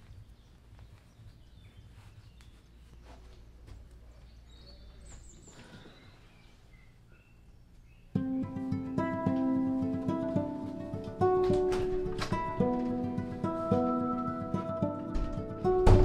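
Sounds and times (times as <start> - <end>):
faint bird chirps: 0.0 - 8.2.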